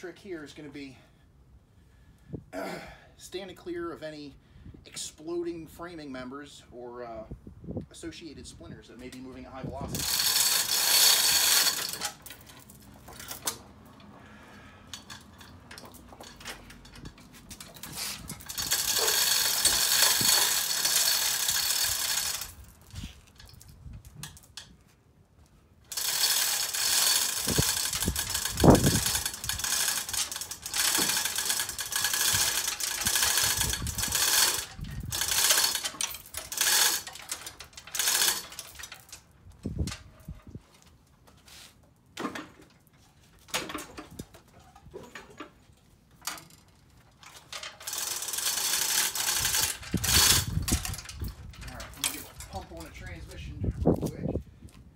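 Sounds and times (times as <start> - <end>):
chain rattling through hoist: 8.9 - 14.0, 14.9 - 24.7, 25.9 - 40.5, 46.2 - 53.5.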